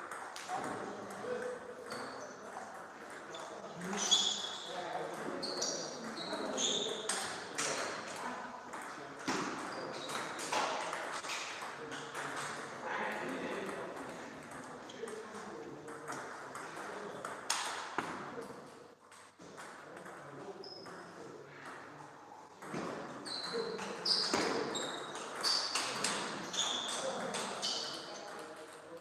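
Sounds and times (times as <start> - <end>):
ball bouncing on table: 6.6 - 12.5, 15.9 - 18.6, 22.6 - 26.3.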